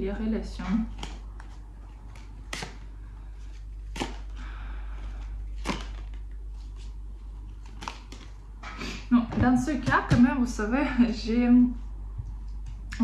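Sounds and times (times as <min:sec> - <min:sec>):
playing cards snapping: 0:00.9 - 0:02.9, 0:03.9 - 0:04.4, 0:05.6 - 0:06.4, 0:07.5 - 0:08.4
cards rustling: 0:00.9 - 0:08.5.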